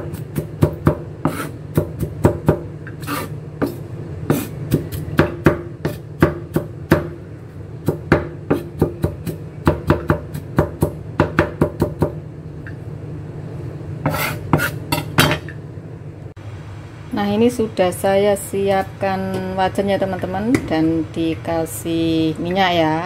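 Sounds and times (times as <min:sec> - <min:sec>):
knife blade scraping board: 0:01.3 - 0:01.6, 0:03.0 - 0:04.5, 0:14.0 - 0:15.3
knife chopping on wooden board: 0:07.9 - 0:12.2.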